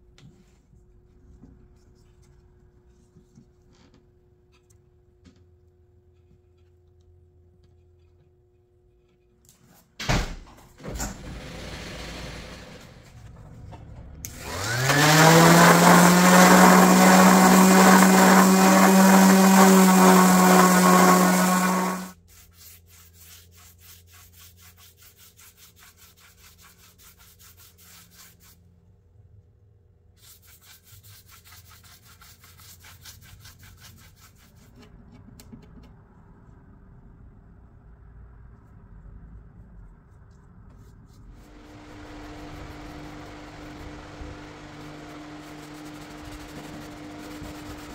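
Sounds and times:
electric power tool motor running: 14.3 - 22.1, 41.5 - 47.9
scratchy brushing strokes: 14.4 - 28.6, 30.2 - 34.9, 40.7 - 47.9.

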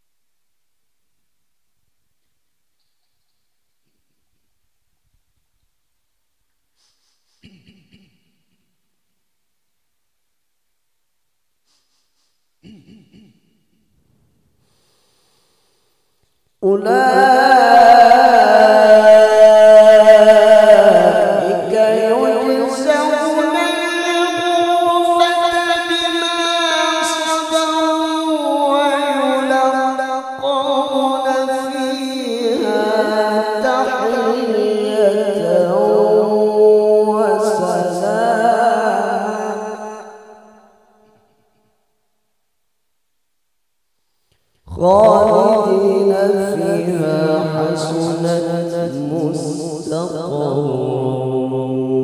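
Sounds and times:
man reciting melodically: 16.6 - 40.3, 44.7 - 52.0.

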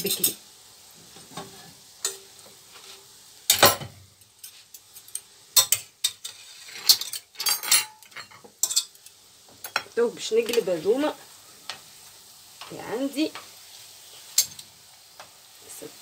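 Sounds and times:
metal utensils clinking cookware: 0.0 - 0.4, 3.5 - 10.7
oil sizzling: 0.0 - 16.0.

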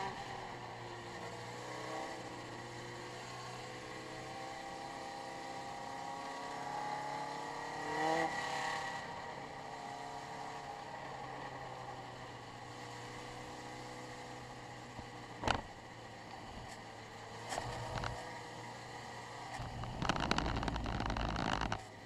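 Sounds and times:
race car engine running: 13.2 - 22.0.

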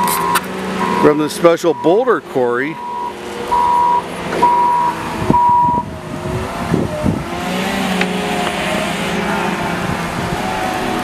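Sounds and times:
reversing alarm beep: 0.0 - 2.1, 2.8 - 5.9
diesel engine revving: 0.0 - 11.0.

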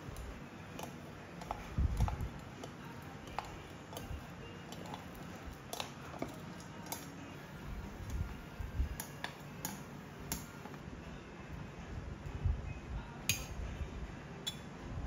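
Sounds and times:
metal tongs clicking on plates: 0.7 - 7.2, 9.0 - 10.8, 13.3 - 13.6, 14.4 - 14.7.

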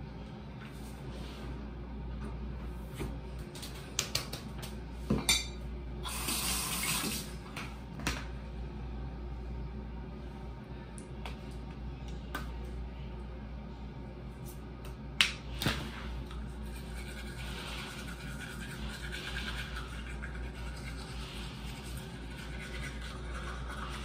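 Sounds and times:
toothbrush scrubbing teeth: 16.3 - 24.0.

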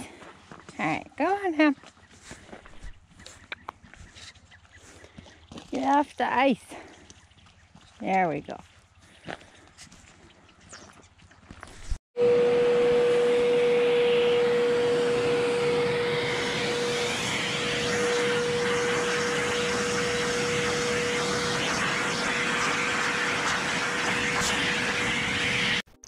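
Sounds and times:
air rushing from hose: 12.2 - 25.8
shop vac motor whine: 12.2 - 25.9.

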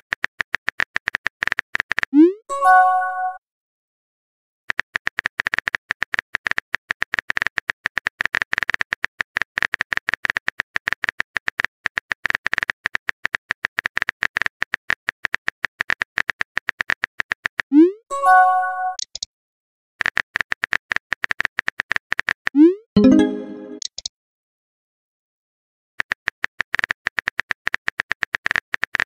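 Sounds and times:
message sent pop: 23.0 - 23.9.

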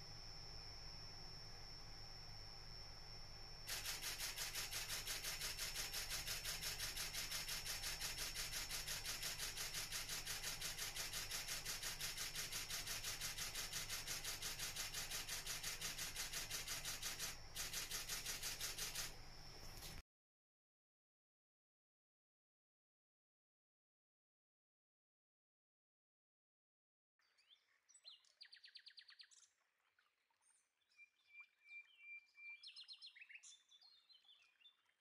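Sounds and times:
camera shutter burst clicking: 3.7 - 20.0.

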